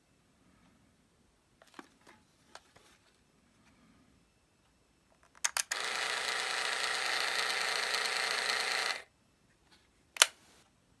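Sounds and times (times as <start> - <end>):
camera click: 5.4 - 9.0
camera motor whirring: 5.6 - 9.1.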